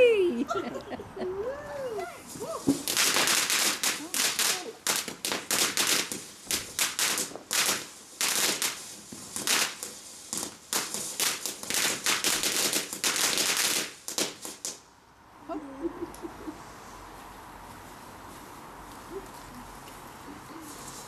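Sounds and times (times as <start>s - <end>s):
firework fountain hissing: 1.7s - 14.8s, 19.4s - 21.0s
firework cracks and pops: 2.0s - 14.9s.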